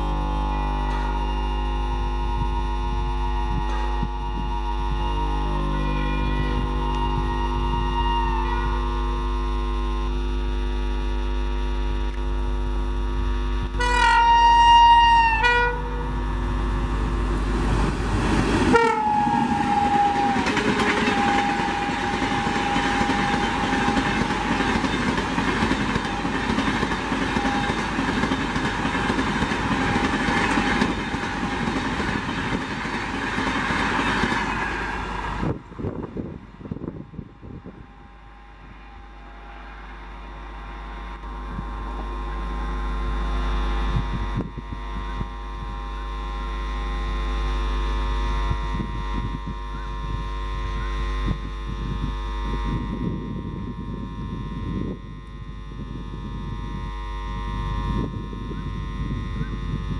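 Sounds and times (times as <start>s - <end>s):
locomotive horn blasts: 0.0s - 11.4s, 13.4s - 17.4s, 18.6s - 32.6s, 34.0s - 59.9s
steady hum: 0.0s - 59.9s
train rushing past: 15.0s - 44.4s
train wheel clatter: 18.4s - 35.6s.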